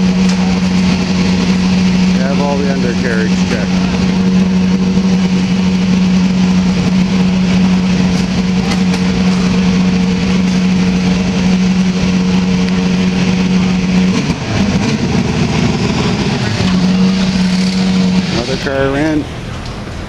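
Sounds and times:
busy noisy background: 0.0s - 20.0s
loud mechanical drone: 0.0s - 20.0s.

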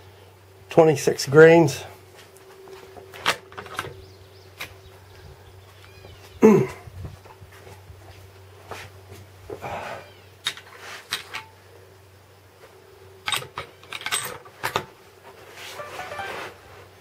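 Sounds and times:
high whine: 15.7s - 17.0s.

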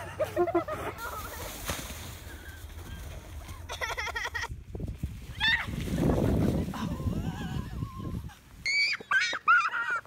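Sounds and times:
wind rumbling on microphone: 2.2s - 8.7s.

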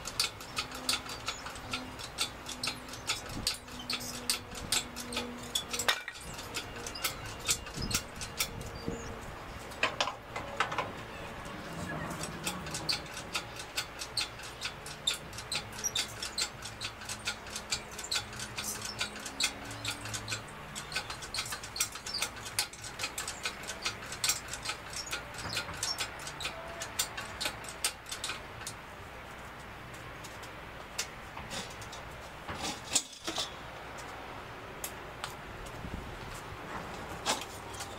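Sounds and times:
rapid metallic clicking: 0.0s - 10.8s, 11.4s - 28.8s.

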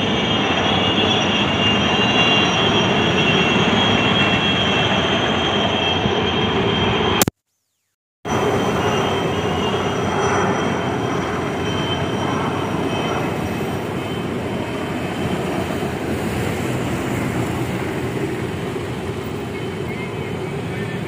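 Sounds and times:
helicopters flying over: 0.0s - 7.2s, 8.3s - 21.0s.

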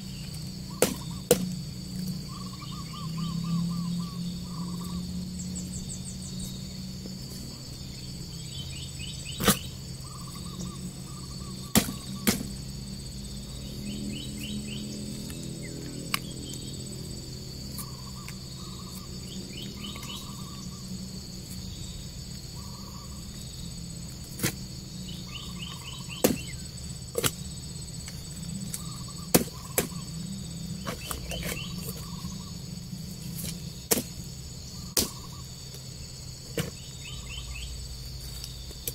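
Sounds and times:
birds chirping: 0.0s - 38.9s
insects droning: 0.0s - 38.9s
low steady hum: 0.0s - 38.9s
roots knocking and snapping: 26.2s - 27.4s.

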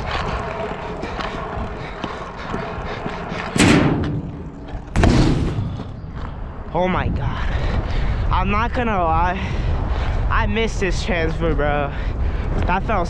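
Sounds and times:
scooter wheels rolling on concrete: 0.0s - 3.6s, 4.2s - 6.8s
loud scooter impacts: 3.6s - 5.9s.

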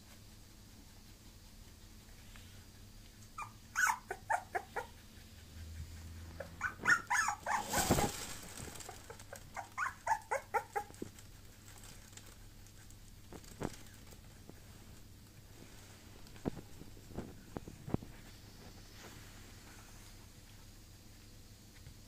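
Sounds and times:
puppy whimpering in high yips: 3.4s - 5.0s, 6.4s - 8.1s, 9.5s - 10.9s.

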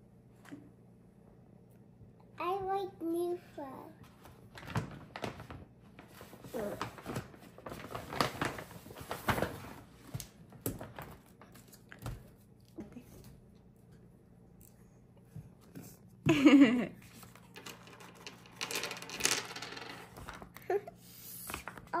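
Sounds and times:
plastic bag crinkling: 6.4s - 9.8s.

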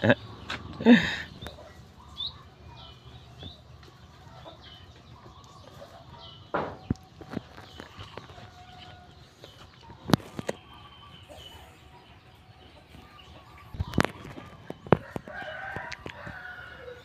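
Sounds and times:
chickens clucking: 0.0s - 17.0s
rooster crowing: 15.0s - 17.0s.

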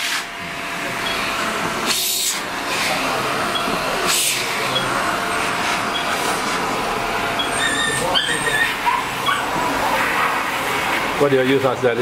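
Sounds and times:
electric hair clippers running: 0.0s - 11.2s.

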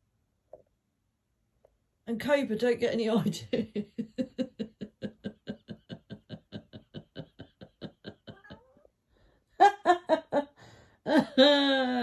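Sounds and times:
person laughing: 3.5s - 8.9s, 9.6s - 12.0s.

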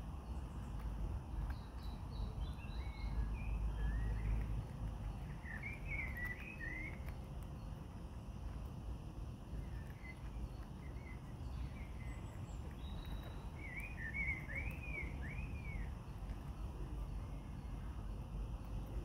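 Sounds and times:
outdoor background noise: 0.0s - 19.0s
bird calling: 12.8s - 15.9s.

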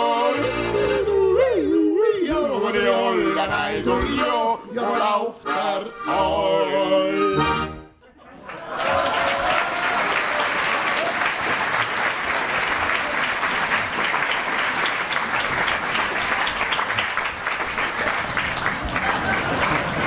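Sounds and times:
audience applause: 8.4s - 20.0s.

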